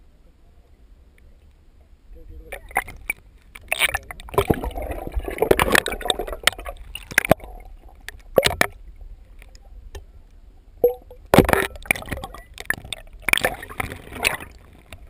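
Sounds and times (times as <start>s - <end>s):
rush of water: 2.3s - 10.0s, 10.8s - 15.0s
water sloshing and gurgling: 2.3s - 15.0s.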